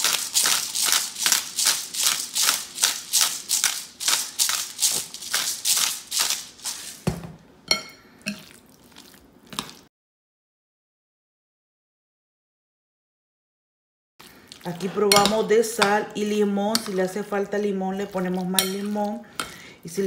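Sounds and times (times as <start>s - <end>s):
salt shaker rattling: 0.0s - 7.0s
spoon clinking glass bowl: 7.7s - 8.6s, 15.1s - 16.0s, 16.7s - 17.2s, 18.4s - 19.6s.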